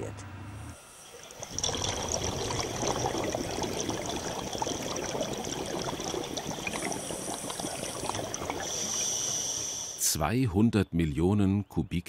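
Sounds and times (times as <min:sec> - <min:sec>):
water rushing and bubbling: 0:01.2 - 0:10.0.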